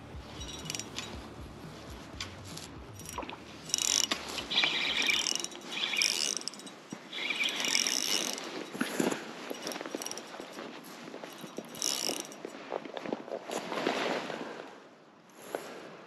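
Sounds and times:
fishing reel drag clicking: 0:00.3 - 0:12.5.

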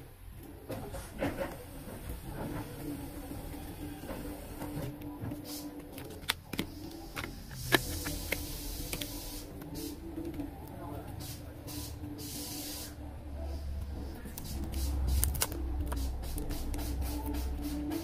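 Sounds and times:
steady low hum: 0:00.0 - 0:18.0
cards and plastic sleeves rustling: 0:05.8 - 0:09.1, 0:14.2 - 0:17.0
sharp clicks and crinkles: 0:05.8 - 0:09.1, 0:14.3 - 0:17.4.

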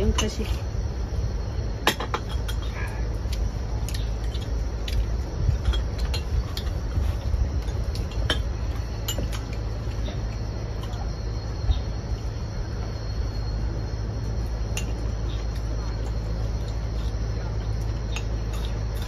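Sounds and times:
faint insect drone: 0:00.0 - 0:19.0.

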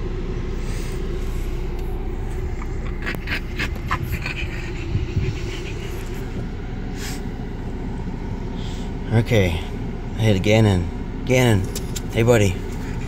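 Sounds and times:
car cabin rumble: 0:00.0 - 0:13.0
dog panting: 0:02.4 - 0:07.3.

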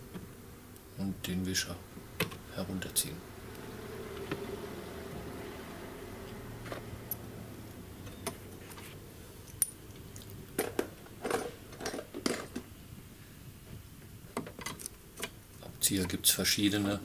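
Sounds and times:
metal tools clinking: 0:08.1 - 0:12.5.

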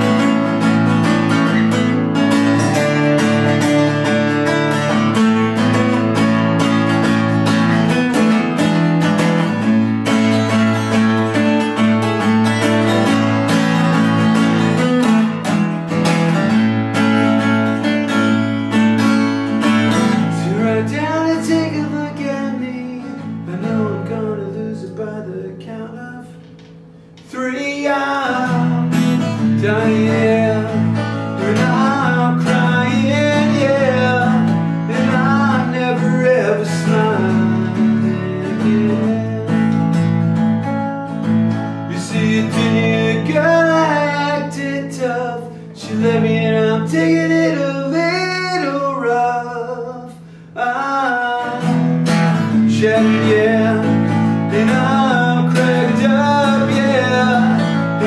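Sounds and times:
acoustic guitar strumming: 0:00.0 - 0:58.0
man singing: 0:19.6 - 0:26.6, 0:27.2 - 0:40.1, 0:41.9 - 0:58.0.

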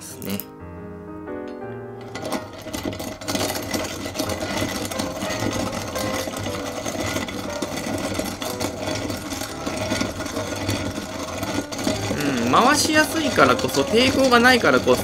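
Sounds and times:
hand coffee grinder grinding beans: 0:01.7 - 0:15.0.

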